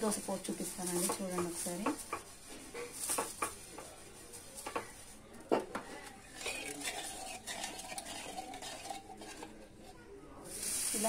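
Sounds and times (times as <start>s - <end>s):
ladle stirring batter in metal pot: 5.9s - 11.0s.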